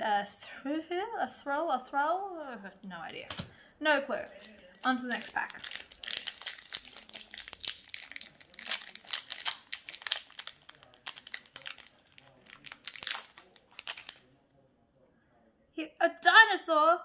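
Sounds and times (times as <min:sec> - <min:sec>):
foil wrapper crinkling and tearing: 0:04.2 - 0:14.2.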